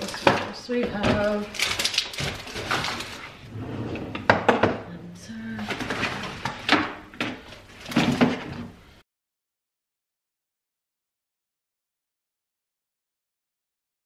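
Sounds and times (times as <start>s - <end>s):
rustling of handled items: 0.0s - 3.5s, 5.3s - 8.8s.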